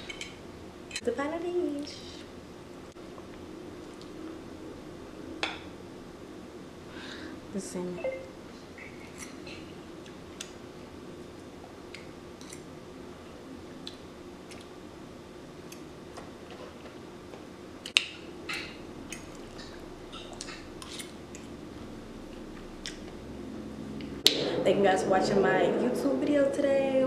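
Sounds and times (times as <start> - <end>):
faint steady hum: 0.0 - 27.0
fork scraping dinner plate: 20.2 - 21.2.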